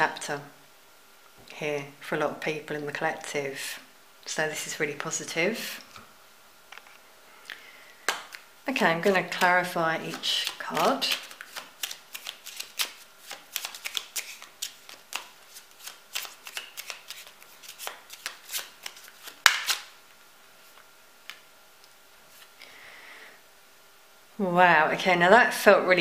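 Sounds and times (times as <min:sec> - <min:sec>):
cards shuffling: 0:09.0 - 0:20.0
card slapping on table: 0:17.8 - 0:19.9.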